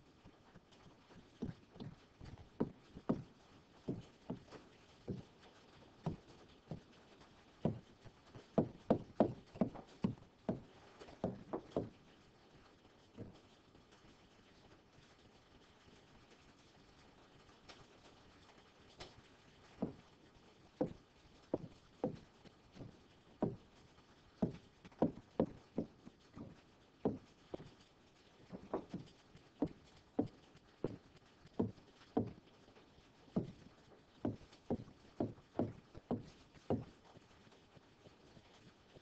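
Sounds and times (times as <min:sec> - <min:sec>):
light taps: 0:01.4 - 0:05.3, 0:07.6 - 0:12.0, 0:19.8 - 0:20.1, 0:20.8 - 0:23.7, 0:24.4 - 0:27.8, 0:28.5 - 0:32.4, 0:33.4 - 0:33.6, 0:34.2 - 0:36.9.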